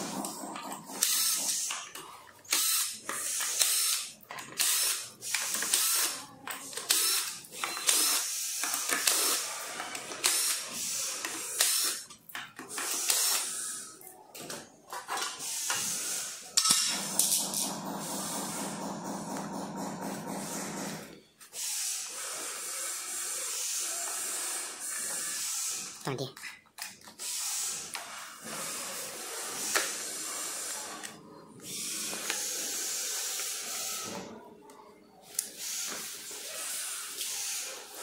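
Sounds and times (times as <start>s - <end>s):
cordless drill whirring: 2.4s - 12.0s, 12.7s - 13.9s, 20.2s - 26.0s.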